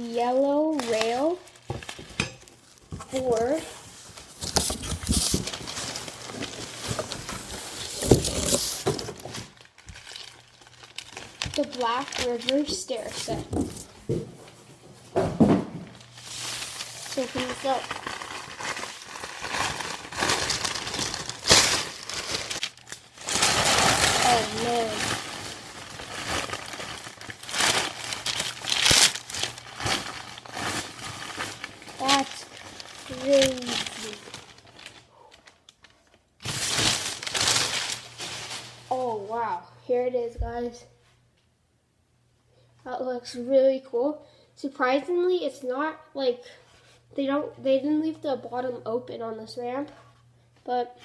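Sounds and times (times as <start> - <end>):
plastic wrap crinkling: 0.0 - 14.2, 15.4 - 39.4
cardboard rustling and scraping: 2.8 - 9.7.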